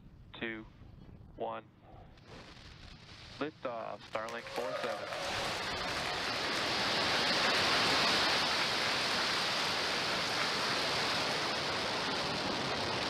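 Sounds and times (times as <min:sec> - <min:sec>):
rocket engines roaring at liftoff: 0:04.0 - 0:13.0.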